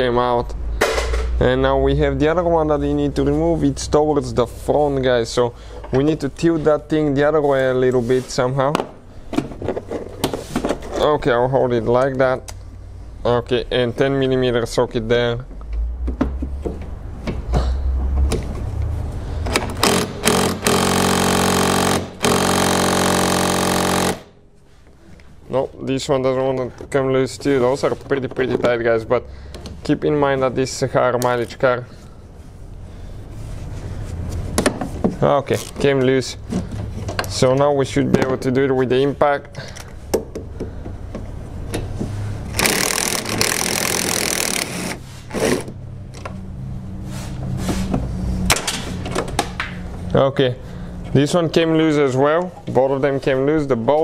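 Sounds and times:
impact wrench hammering: 0.8s - 1.3s, 19.5s - 24.4s, 42.5s - 45.7s
electric ratchet motor whine: 19.8s - 24.3s, 42.6s - 45.0s.

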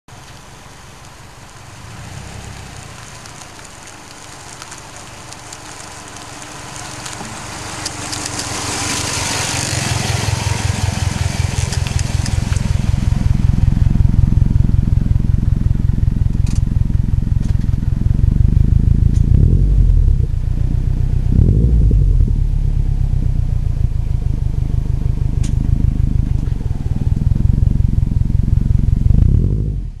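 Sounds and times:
tyres crunching on gravel: 0.1s - 19.9s
car exhaust burbling: 0.1s - 30.0s
engine revving: 7.0s - 30.0s.

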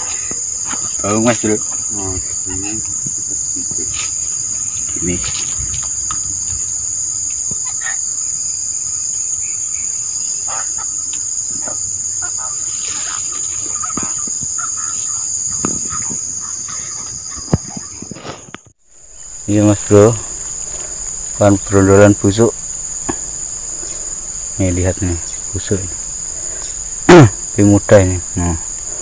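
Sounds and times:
insects buzzing: 0.0s - 29.0s.

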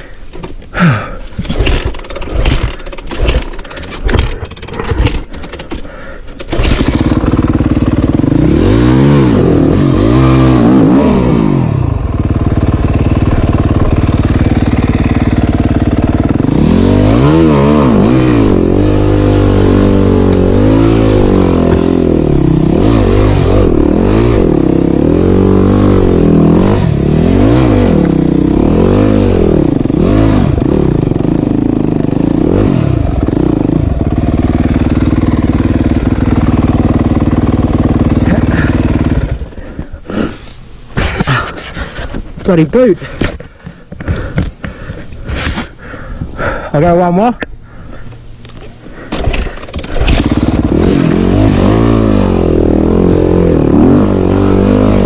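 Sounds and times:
dirt bike engine revving: 0.8s - 55.0s.

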